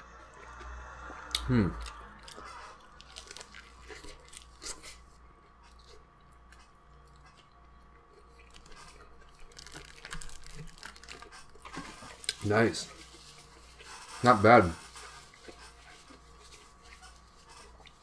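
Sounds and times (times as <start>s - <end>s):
quiet chewing: 0.0s - 18.0s
crunching taco shell: 1.9s - 5.0s, 8.2s - 12.5s.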